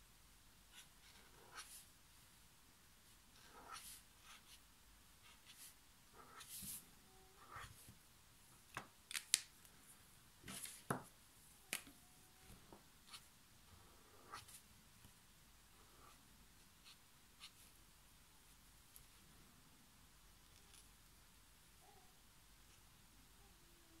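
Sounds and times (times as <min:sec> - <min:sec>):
brush pen strokes on paper: 0:00.7 - 0:01.9, 0:03.3 - 0:04.6, 0:05.2 - 0:07.9.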